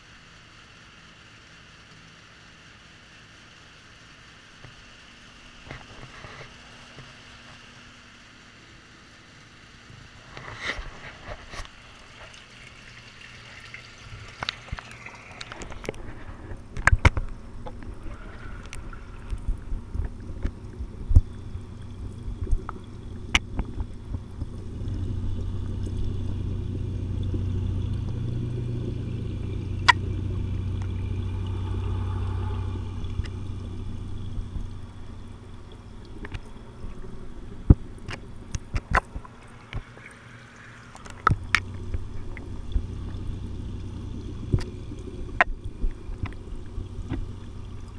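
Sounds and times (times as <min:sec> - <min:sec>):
water sloshing and trickling: 0:09.3 - 0:47.9
muffled underwater rumble: 0:14.8 - 0:47.9.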